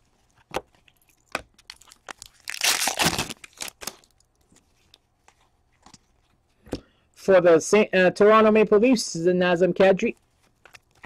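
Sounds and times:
foil wrapper crinkling: 0.2 - 4.4.

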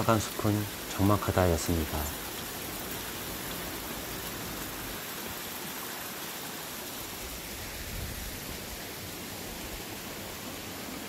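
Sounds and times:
mountain stream flowing: 0.0 - 11.0.

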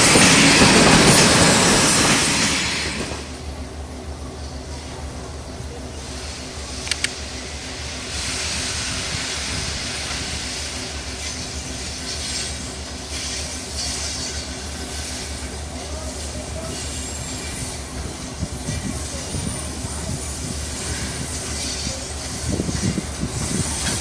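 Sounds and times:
electric locomotive humming: 0.0 - 24.0
sharp clicks: 6.8 - 7.2.

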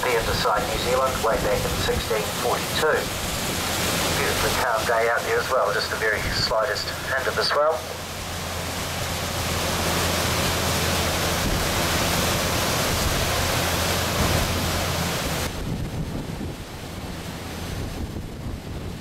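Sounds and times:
low engine drone: 0.0 - 19.0
water noise: 0.0 - 19.0
wind rushing over microphone: 11.3 - 19.0.

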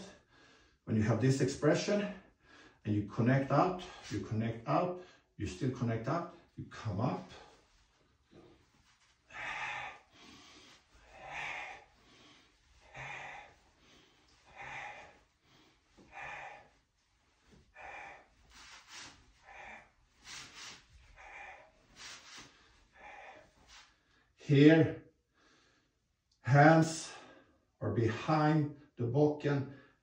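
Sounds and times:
man breathing: 0.0 - 0.8, 2.2 - 2.8, 3.7 - 4.3, 5.0 - 5.4, 7.2 - 24.4, 25.3 - 26.0.

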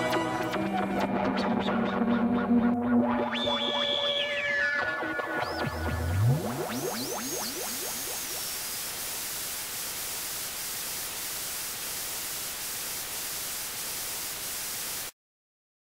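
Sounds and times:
static hiss: 3.3 - 15.2.

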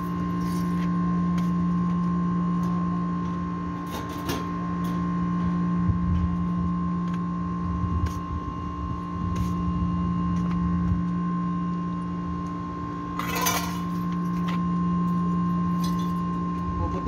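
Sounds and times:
steady machine hum: 0.0 - 17.0
footsteps on concrete: 7.9 - 11.2.

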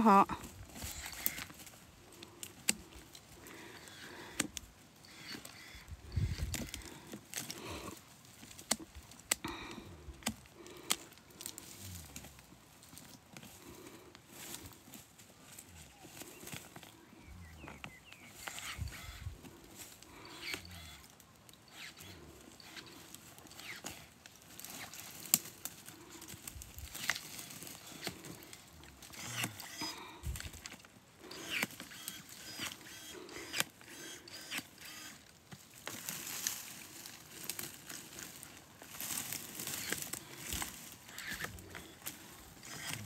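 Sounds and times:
twigs cracking and snapping: 0.4 - 43.0
dry brush rustling: 10.2 - 43.0.

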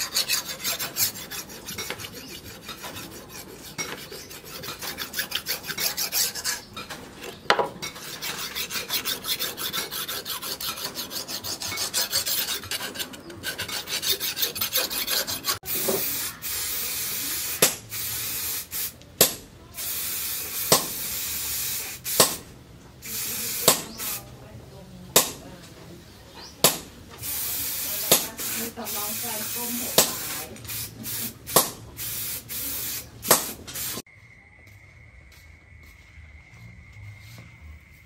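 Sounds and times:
file rasping on steel: 0.0 - 15.7
aerosol spray can hissing: 15.7 - 19.0, 19.8 - 22.3, 23.0 - 24.3, 27.2 - 34.0.

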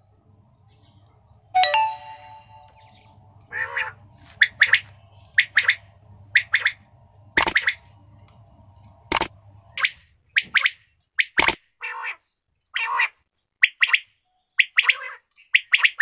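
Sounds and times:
ringing note: 1.6 - 3.0
quails calling: 2.7 - 7.9, 9.1 - 12.2, 12.8 - 16.0.

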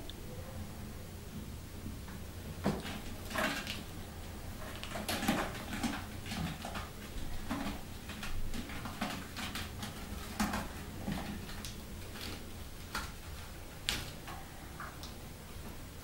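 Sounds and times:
kittens scrambling on cat tree: 2.6 - 14.9.

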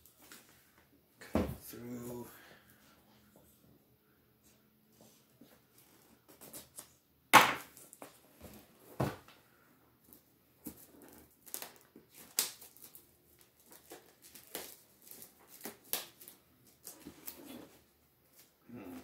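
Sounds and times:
plastic wrap crackling: 10.6 - 17.6.

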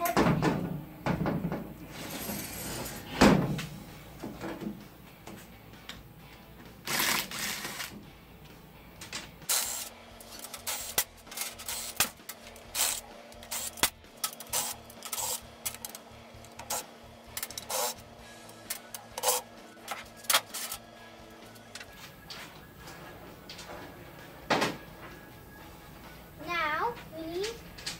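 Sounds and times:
cordless drill running: 6.9 - 7.9, 11.6 - 19.5.

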